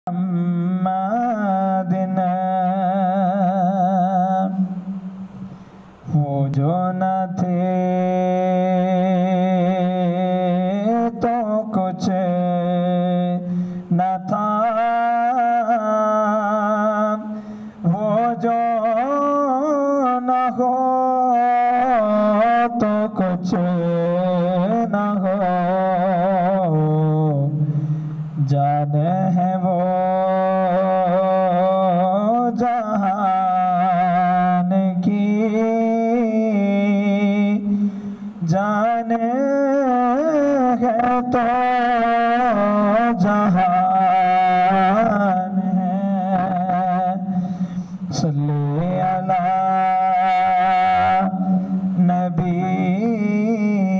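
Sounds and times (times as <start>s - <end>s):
man singing into a microphone: 0.0s - 53.9s
low drone: 0.1s - 53.9s
singer breathing: 5.3s - 6.0s, 13.4s - 13.9s, 17.3s - 17.8s, 27.6s - 28.4s, 37.6s - 38.4s, 47.2s - 48.1s, 51.4s - 52.0s.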